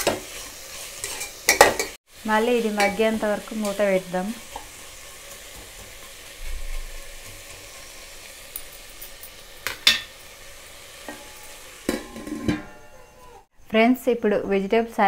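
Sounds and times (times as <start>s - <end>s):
vegetables sizzling in a pot: 0.0s - 13.6s
spoon clanking against pot: 11.1s - 13.1s
metal lid clattering: 11.1s - 13.4s.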